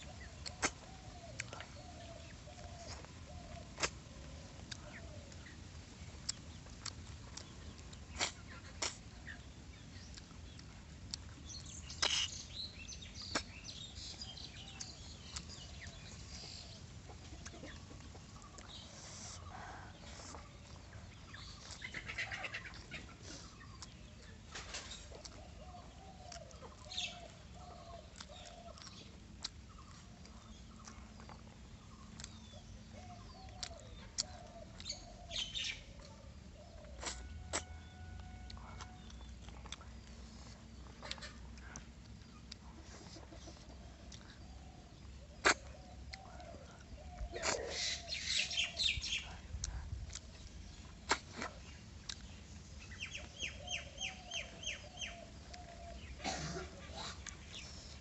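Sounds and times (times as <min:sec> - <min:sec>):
mouth eating sounds: 0:00.1 - 0:24.3, 0:25.1 - 0:53.3
bird calling: 0:42.8 - 0:49.5, 0:50.8 - 0:58.0.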